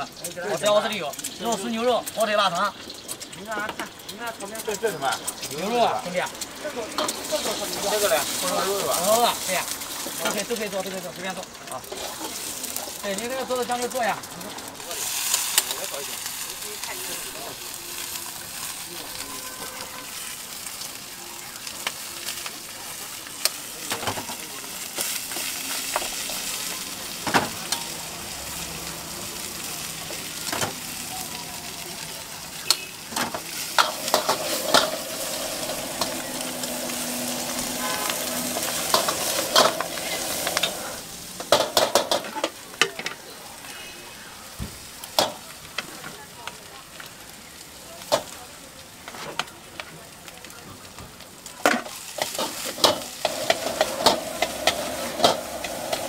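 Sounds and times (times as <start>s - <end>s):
greens sizzling in a wok: 0.0s - 56.0s
metal ladle scraping a wok: 32.6s - 42.3s, 52.2s - 56.0s.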